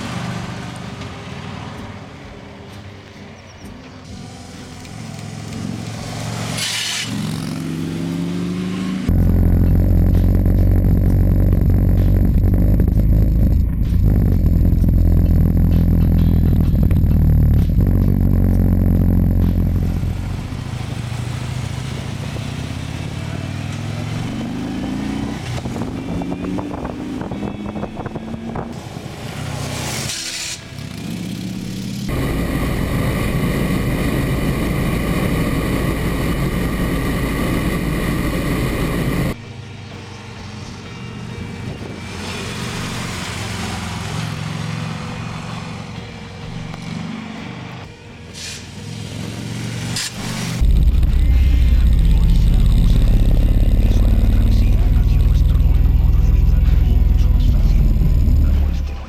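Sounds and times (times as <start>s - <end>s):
motorcycle engines accelerating: 3.7s - 29.9s, 30.6s - 39.4s, 48.8s - 59.0s.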